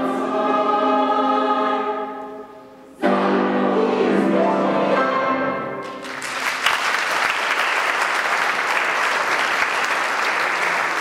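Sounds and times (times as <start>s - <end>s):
choir singing chord: 0.0s - 5.9s
audience applauding: 5.8s - 11.0s.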